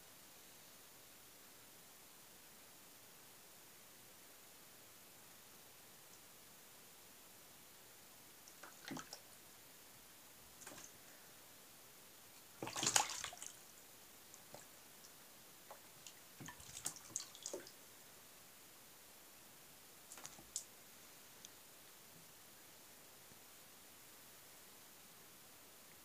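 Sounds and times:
cat paw splashing water: 0:08.5 - 0:09.3, 0:10.6 - 0:11.0, 0:12.4 - 0:13.7, 0:14.4 - 0:14.8, 0:15.7 - 0:17.8, 0:20.1 - 0:20.7.

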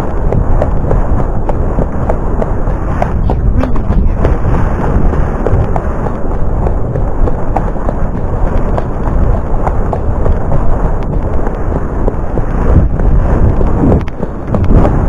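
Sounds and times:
hooves clicking: 0:00.0 - 0:15.0
wind buffeting microphone: 0:00.0 - 0:15.0.

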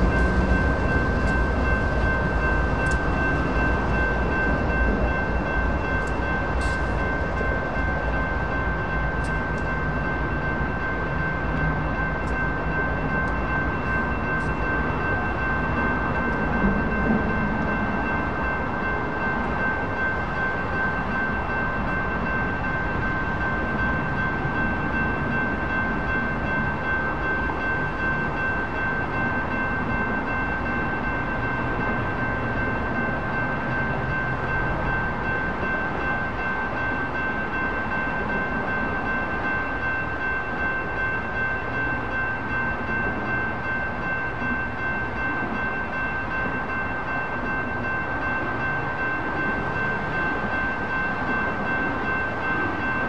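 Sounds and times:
crossing warning bell ringing: 0:00.0 - 0:53.0
train wheels rumbling on rails: 0:00.0 - 0:53.0.

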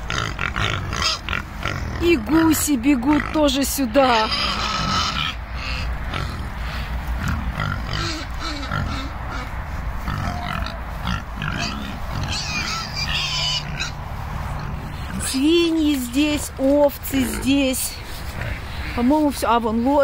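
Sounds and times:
pigs grunting: 0:00.0 - 0:15.7, 0:17.0 - 0:19.1.

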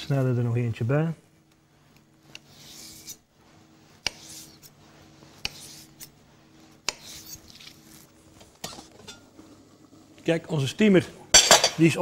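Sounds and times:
knife slicing asparagus: 0:05.4 - 0:06.2, 0:06.8 - 0:08.0.

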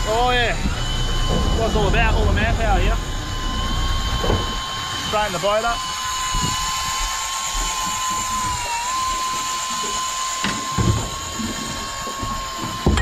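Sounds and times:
fishing reel motor whining: 0:00.0 - 0:13.0
low knocks: 0:00.6 - 0:04.7.

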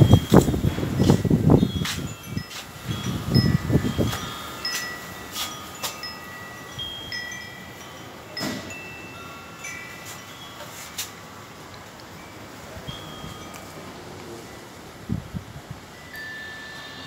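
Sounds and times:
wind chime ringing: 0:00.0 - 0:14.8, 0:15.9 - 0:17.0.

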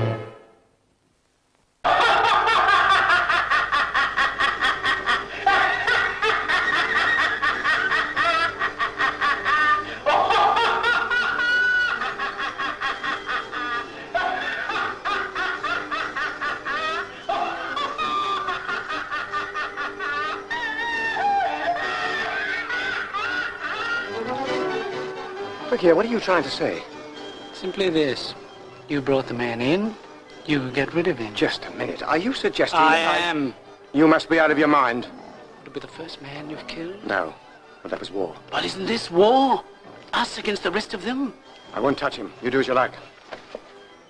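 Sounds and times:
music: 0:00.0 - 0:00.8, 0:01.9 - 0:44.0
people laughing and snickering: 0:01.9 - 0:25.7.

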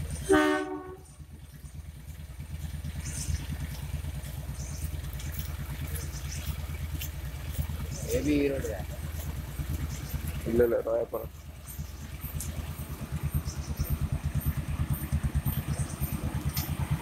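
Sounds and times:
locomotive horn honk: 0:00.2 - 0:01.2.

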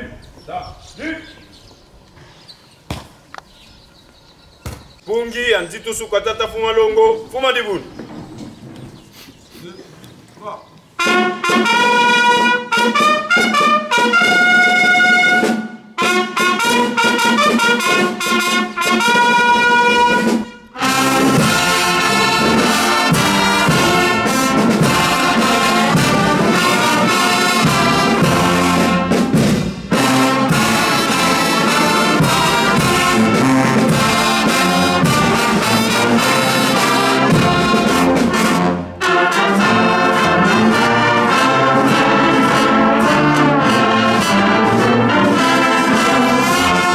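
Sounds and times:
horns holding notes: 0:10.4 - 0:46.9
brass band playing: 0:11.0 - 0:46.9.

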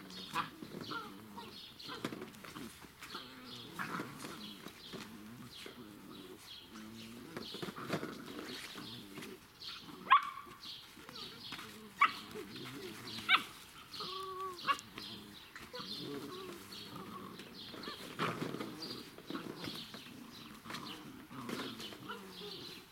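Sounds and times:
low puppy noises: 0:00.0 - 0:22.9
puppies yelping: 0:00.0 - 0:22.9
puppy whining: 0:10.9 - 0:22.9.

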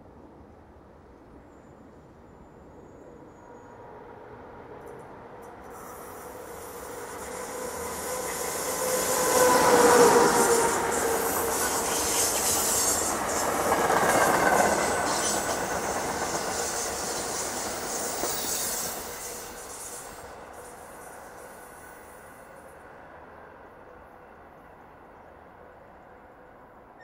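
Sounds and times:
electric locomotive passing: 0:02.2 - 0:27.0
train coaches clattering over rails: 0:04.8 - 0:20.8.

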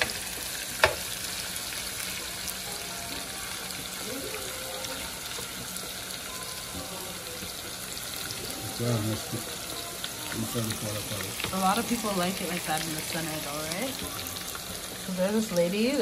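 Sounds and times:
fish frying in a pan: 0:00.0 - 0:16.0
utensil knocking a pan: 0:00.8 - 0:01.1.

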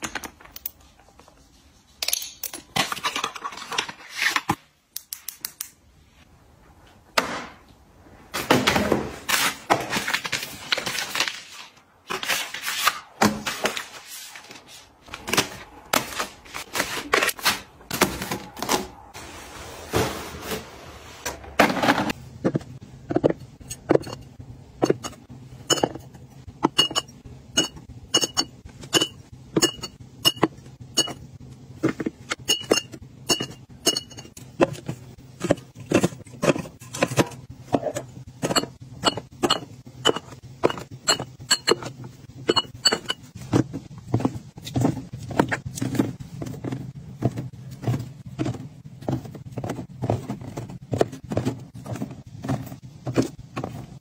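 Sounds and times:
items knocking and rustling: 0:08.3 - 0:54.0
glass bottles clinking: 0:23.8 - 0:31.2, 0:32.4 - 0:34.4, 0:38.4 - 0:43.3.

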